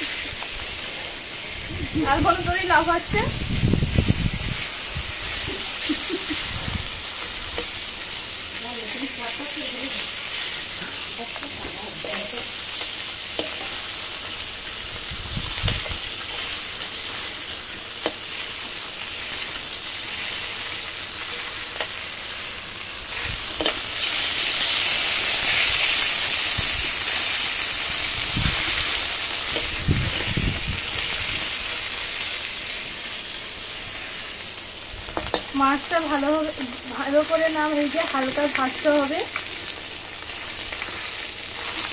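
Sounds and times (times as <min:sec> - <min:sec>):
fish sizzling in hot oil: 0:00.0 - 0:41.9
metal spatula scraping and tapping: 0:12.8 - 0:13.8, 0:23.6 - 0:23.8, 0:35.2 - 0:35.5.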